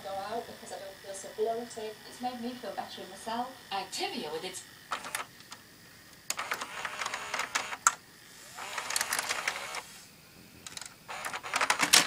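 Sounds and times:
tape mechanism clicking and rattling: 4.9 - 5.6, 6.2 - 9.8, 10.6 - 12.0.

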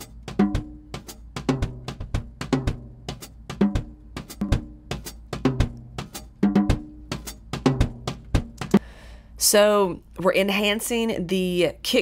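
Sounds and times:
drum kit beat with cymbals: 0.0 - 8.8.

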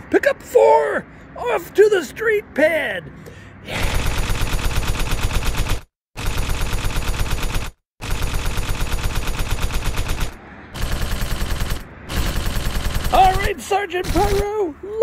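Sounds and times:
machine-gun fire: 3.8 - 14.5.

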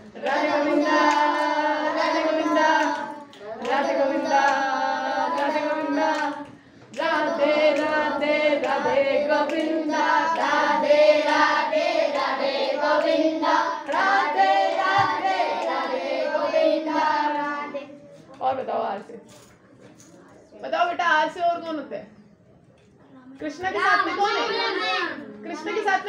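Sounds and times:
children singing a devotional chant: 0.0 - 18.0
hands clapping: 0.2 - 11.7, 12.6 - 16.6.

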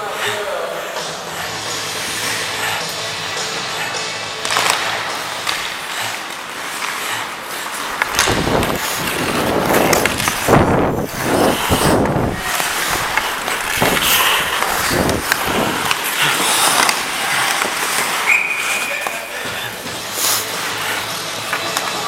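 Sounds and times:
ice skates scraping ice: 0.0 - 22.0
wind on microphone: 8.3 - 15.8.

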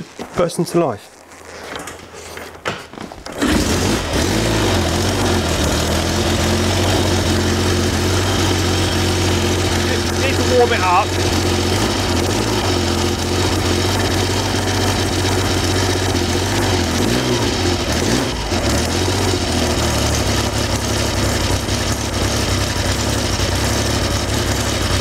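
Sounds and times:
motorcycle engine running cold: 3.3 - 25.0.

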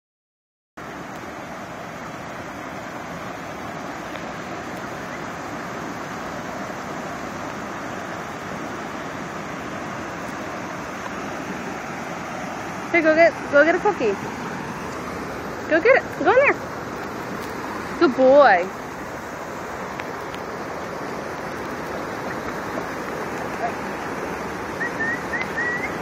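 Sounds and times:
creek water rushing over rocks: 0.8 - 26.0.

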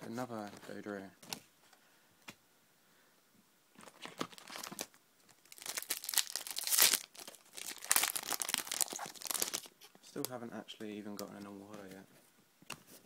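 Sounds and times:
foil wrapper crinkling and tearing: 3.8 - 9.7.

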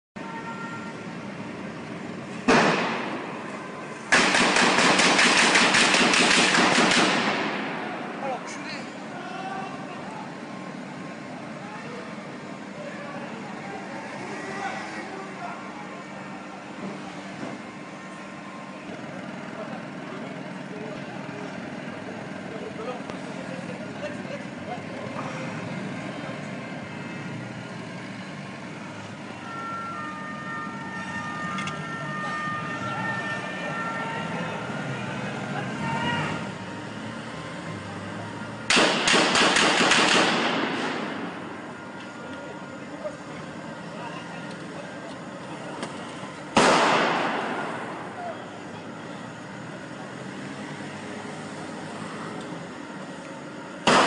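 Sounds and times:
fire engine idling: 0.2 - 54.0
street noise: 0.2 - 54.0
gunshot echoing off buildings: 2.5 - 3.4, 4.1 - 8.0, 38.7 - 41.3, 46.6 - 48.1
rapid gunfire: 4.1 - 7.7, 38.7 - 41.0, 46.6 - 47.7.

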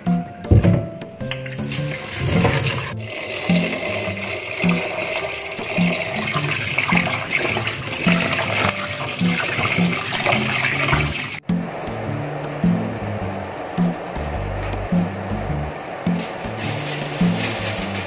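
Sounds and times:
soft background music with beat: 0.0 - 18.0
tap water running into metal pot: 1.3 - 11.4
hand rubbing beans: 16.1 - 18.0.

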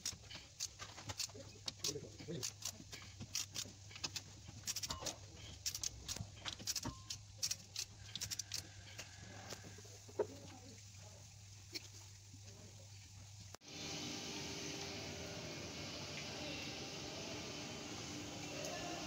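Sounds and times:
ratchet wrench clicking: 0.0 - 8.7.

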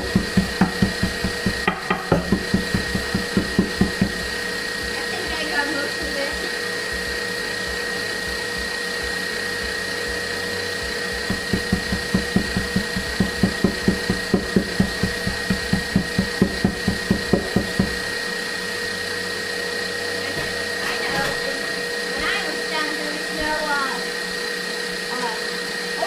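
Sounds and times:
electric mixer motor: 0.0 - 26.0.

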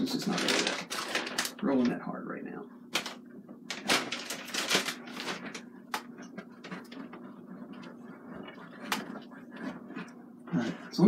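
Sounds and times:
brush scratching on canvas: 6.2 - 10.2.

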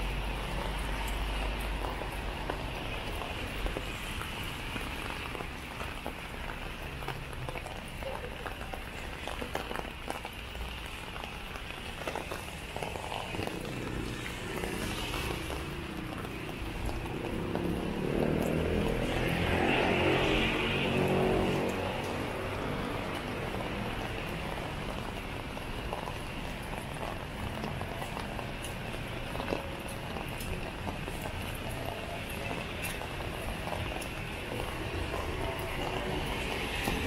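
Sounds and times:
rain pattering on an umbrella: 0.0 - 37.0
traffic on a wet road: 0.0 - 37.0
vehicle engine: 12.8 - 37.0.

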